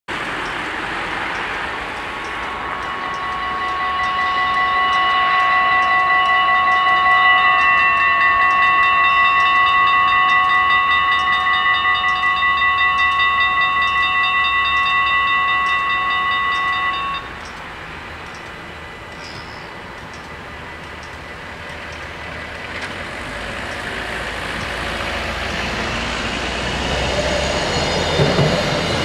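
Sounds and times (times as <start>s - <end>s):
level-crossing bells ringing: 0.3s - 22.4s.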